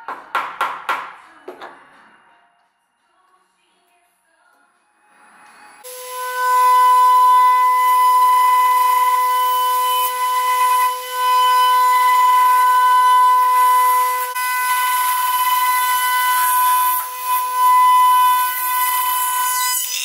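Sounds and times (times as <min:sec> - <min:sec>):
router spindle whining: 0:05.8 - 0:20.0.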